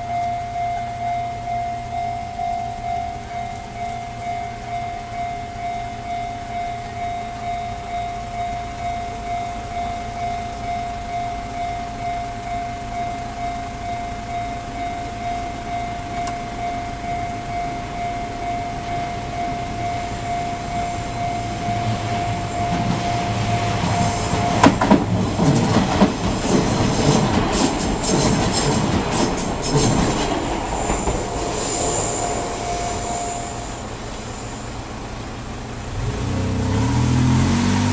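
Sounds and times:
level-crossing warning bell: 0.0s - 36.0s
car engine revving: 14.4s - 37.9s
train wheels clattering over rail joints: 21.6s - 33.0s.

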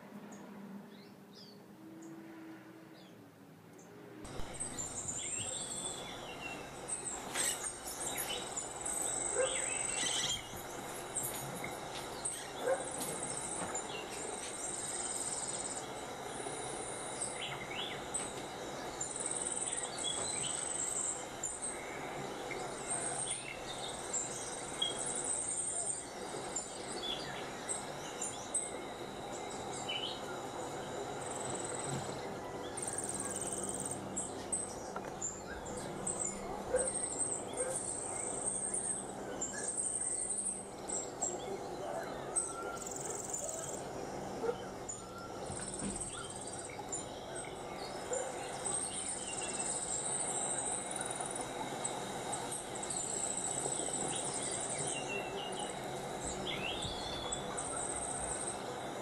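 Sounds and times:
outdoor background noise: 0.0s - 59.0s
bird chirps: 4.3s - 43.9s
insects trilling: 4.3s - 59.0s.

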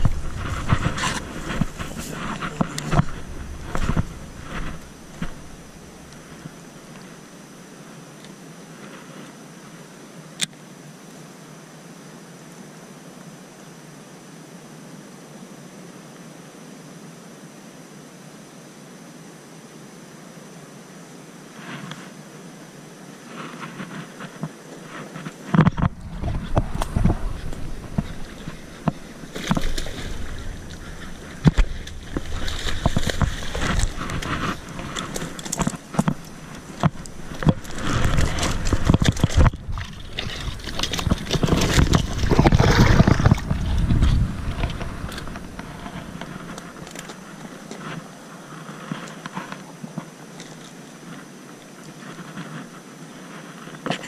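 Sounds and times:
low rumble on microphone: 0.0s - 7.0s, 25.6s - 47.7s.

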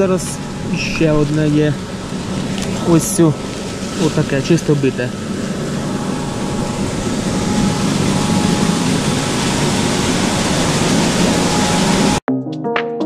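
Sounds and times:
motor hum: 0.0s - 12.2s
winnowing machine rushing air and grain: 0.0s - 12.2s
music: 12.3s - 13.0s.

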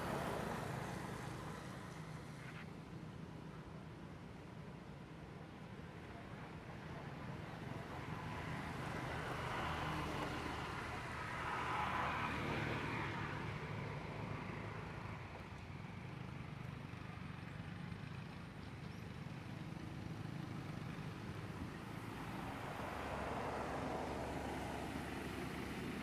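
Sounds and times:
distant traffic hum: 0.0s - 26.0s
vehicle passing: 20.7s - 26.0s.

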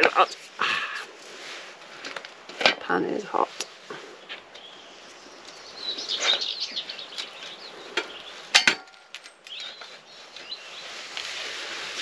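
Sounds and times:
small bird chirping: 3.6s - 8.6s, 9.4s - 11.1s.

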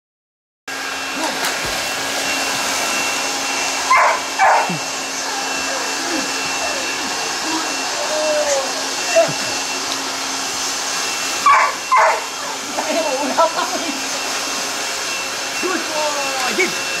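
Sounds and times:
steady motor hum: 0.7s - 17.0s
dog whining and yelping: 3.9s - 7.1s, 11.4s - 12.8s.

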